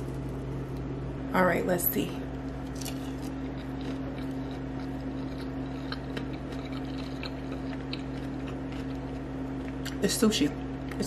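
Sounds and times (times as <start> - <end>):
low hum: 0.0 - 11.0
person chewing: 2.6 - 10.0.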